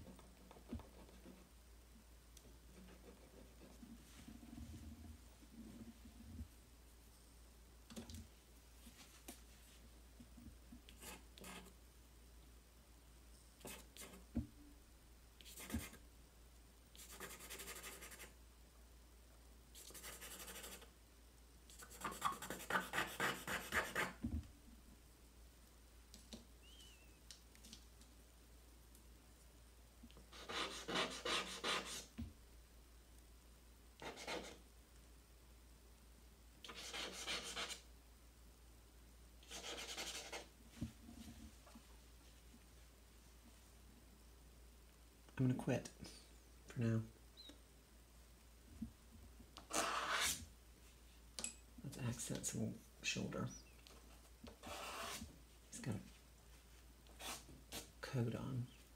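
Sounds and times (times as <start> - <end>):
pencil scratching on paper: 11.0 - 11.7, 15.4 - 16.0, 17.0 - 18.3, 19.8 - 20.9, 21.7 - 24.2, 30.3 - 32.1, 34.0 - 34.6, 36.7 - 37.8, 39.4 - 40.5, 49.7 - 50.4, 54.6 - 55.2, 57.2 - 57.9.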